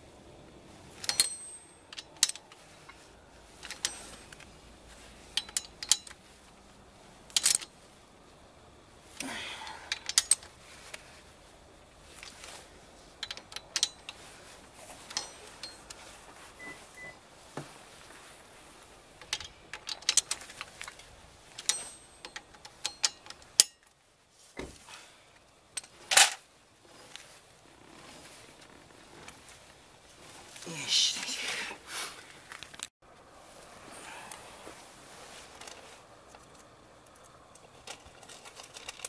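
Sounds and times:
socket wrench clinking on metal: 1.0s - 3.0s, 3.6s - 4.5s, 5.3s - 6.2s, 7.3s - 7.7s, 9.9s - 10.5s, 13.2s - 14.3s, 15.0s - 16.8s, 19.2s - 20.4s, 21.6s - 23.9s
short rustle: 9.0s - 23.2s, 24.1s - 36.7s.

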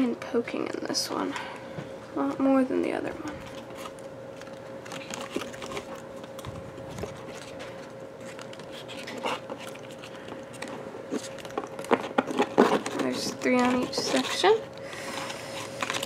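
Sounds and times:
faint steady hum: 0.0s - 16.0s
card rustling and clicks: 3.3s - 16.0s.

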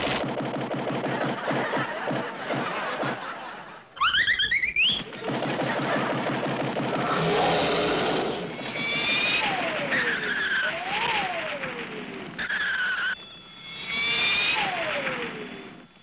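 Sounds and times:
falling whistle glides: 4.0s - 5.0s, 7.2s - 11.6s, 12.4s - 15.8s
screeching skid squeals: 7.4s - 11.2s, 12.4s - 15.6s.

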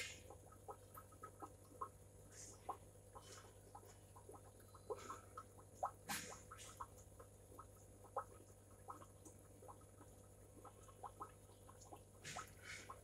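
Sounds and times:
aquarium air pump humming: 0.0s - 13.0s.

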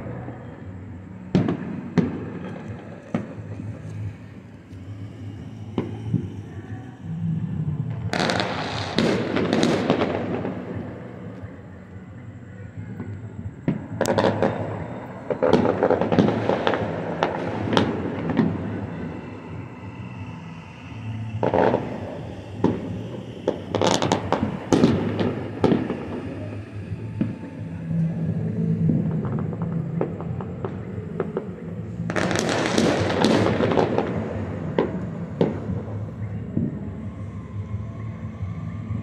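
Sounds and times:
fireworks bangs and crackling: 1.3s - 4.8s, 5.7s - 6.6s, 7.8s - 11.5s, 12.8s - 19.6s, 21.3s - 37.1s.

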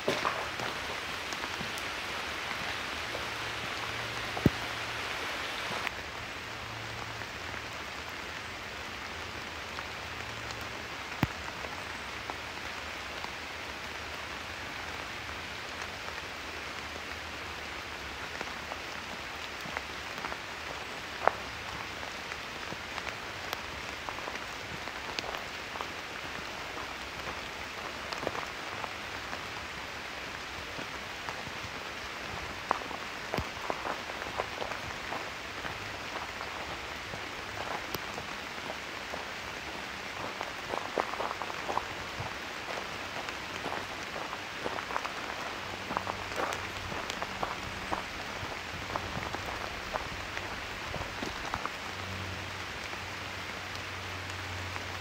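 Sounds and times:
single raindrops hitting close: 0.0s - 6.0s
steady rain hiss: 0.0s - 55.0s.

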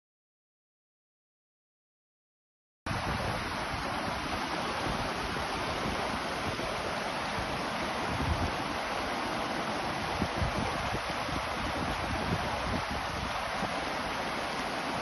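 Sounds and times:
wind buffeting microphone: 2.9s - 8.8s, 10.0s - 13.8s
river rushing over stones: 2.9s - 15.0s.

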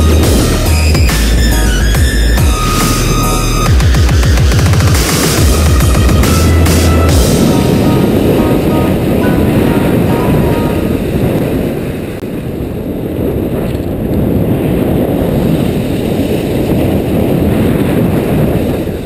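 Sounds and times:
wind buffeting microphone: 0.0s - 19.0s
skis sliding over snow: 13.5s - 19.0s.

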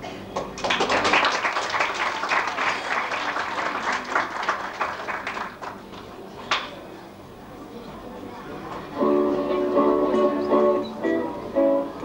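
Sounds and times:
audience clapping: 0.4s - 6.1s.

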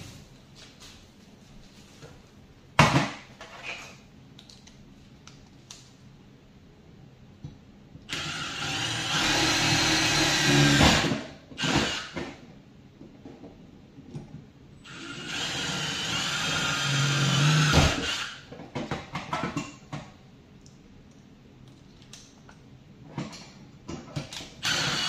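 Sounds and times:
cordless drill drilling metal: 8.1s - 12.2s, 14.9s - 18.4s, 24.6s - 25.0s.

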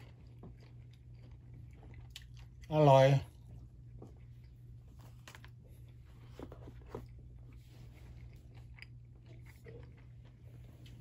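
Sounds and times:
person chewing: 0.0s - 11.0s.

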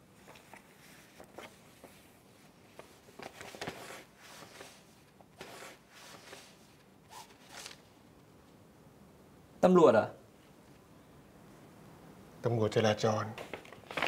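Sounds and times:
paper envelope rustling: 0.2s - 7.9s, 13.4s - 14.0s.

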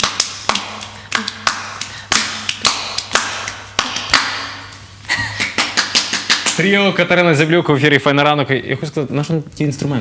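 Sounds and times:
hand claps: 0.0s - 6.7s.

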